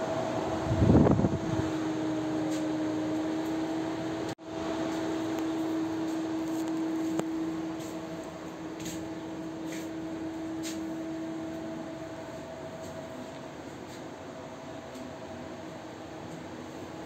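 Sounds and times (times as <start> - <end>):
ventilation machinery hum: 0.0 - 17.0.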